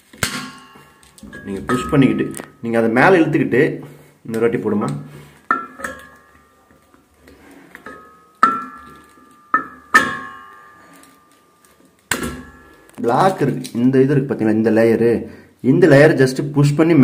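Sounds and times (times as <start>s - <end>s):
metal clinking on gas cylinder: 5.3s - 13.5s.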